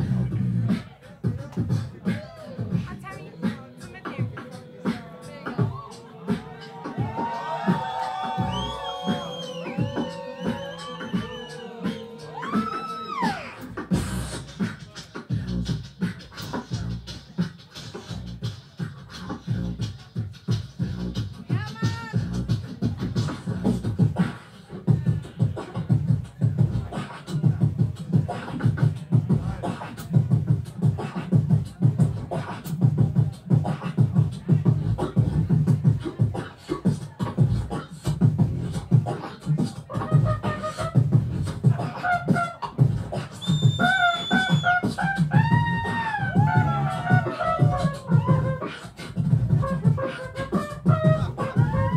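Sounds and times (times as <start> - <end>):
deep bass line: 0.0 - 0.7, 5.3 - 12.5, 13.7 - 14.6, 15.3 - 15.9, 19.2 - 20.0, 20.6 - 24.2, 24.9 - 26.9, 29.0 - 36.2, 37.3 - 39.0, 40.0 - 51.9
beatboxing beat: 0.0 - 51.9
gliding vocal tones: 1.7 - 15.1.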